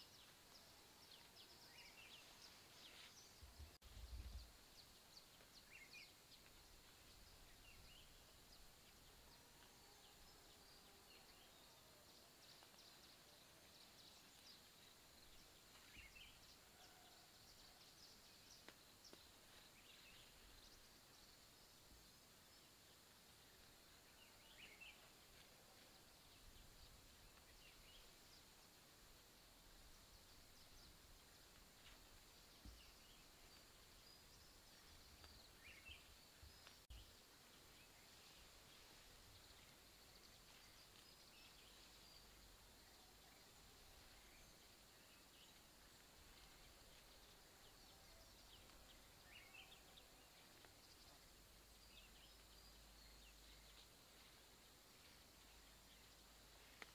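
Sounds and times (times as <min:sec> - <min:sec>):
faint bird chirps: 0:00.0 - 0:56.9.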